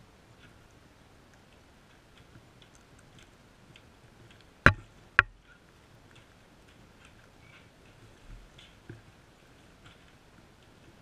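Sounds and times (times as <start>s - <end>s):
birds pecking on paving: 0.0s - 11.0s
loud sharp knocks: 4.7s - 5.4s.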